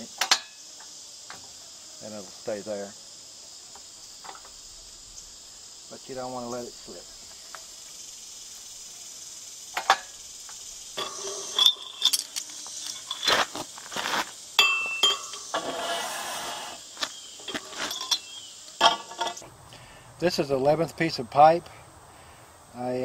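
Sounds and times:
crickets chirping: 0.0s - 23.0s
metal pipe and chain clinking: 11.0s - 13.6s, 14.6s - 15.6s, 17.4s - 19.4s
scraping noise: 15.5s - 16.8s.

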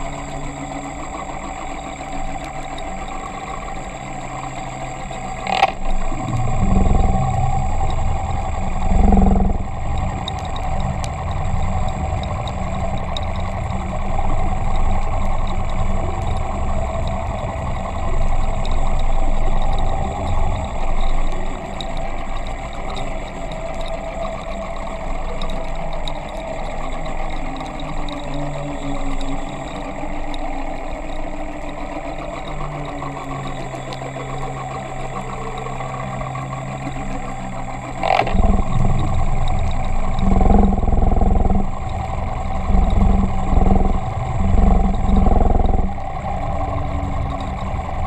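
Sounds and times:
underwater engine hum: 0.0s - 48.0s
low rumble: 5.3s - 20.9s, 37.8s - 48.0s.

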